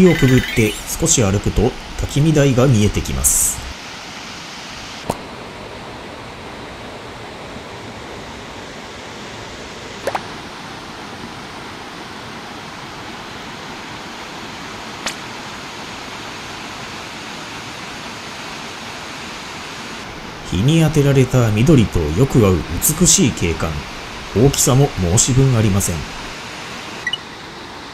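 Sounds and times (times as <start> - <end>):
waterfall rushing: 0.0 - 5.4.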